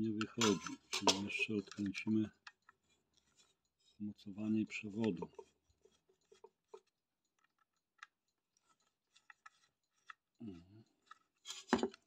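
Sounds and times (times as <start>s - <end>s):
screwdriver clicks and scrapes: 5.0s - 10.3s, 11.0s - 12.0s.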